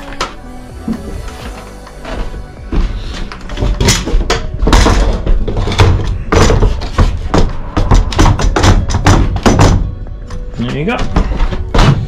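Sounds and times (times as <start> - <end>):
metal clanks and knocks: 0.1 - 12.0.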